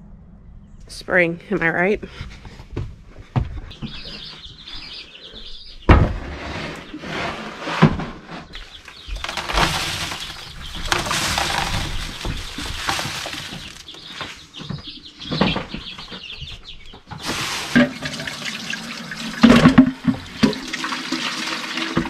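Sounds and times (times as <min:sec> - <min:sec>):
bird chirping: 0:00.1 - 0:01.9, 0:03.3 - 0:07.0, 0:08.4 - 0:17.3
rustling in plastic box: 0:07.4 - 0:16.5, 0:17.1 - 0:18.4.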